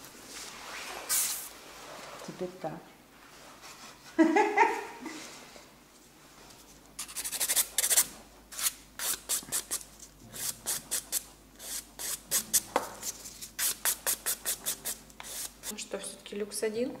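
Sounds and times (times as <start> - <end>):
nail file rasping on fingernails: 7.0 - 9.8, 10.4 - 12.6, 13.6 - 15.6.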